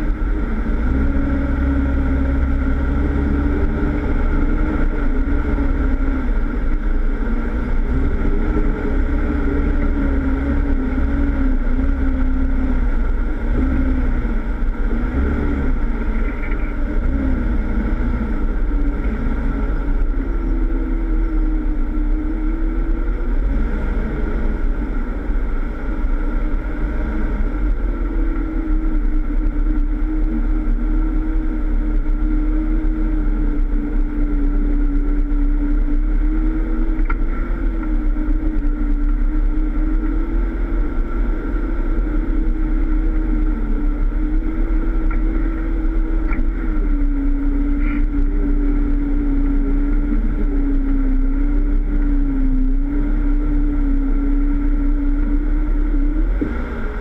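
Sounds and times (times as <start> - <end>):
car engine revving unevenly: 0.0 - 57.0.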